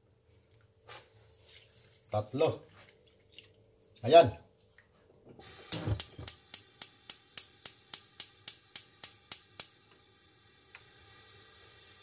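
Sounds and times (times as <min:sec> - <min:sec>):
stove igniter clicking: 0:05.7 - 0:09.8.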